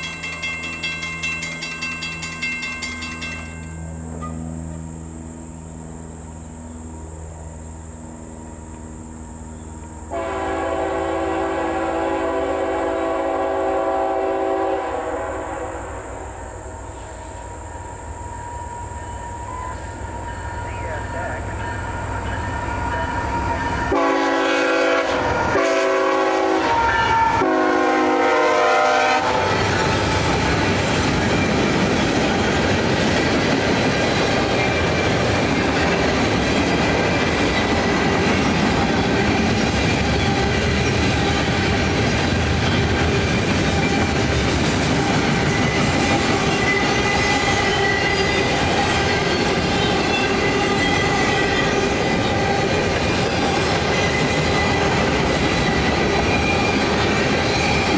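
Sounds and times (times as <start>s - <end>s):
wheels clacking on rails: 0.0s - 4.8s, 29.3s - 57.9s
train cars rumbling past: 0.0s - 57.9s
locomotive horn blasts: 10.0s - 16.3s, 18.3s - 29.7s.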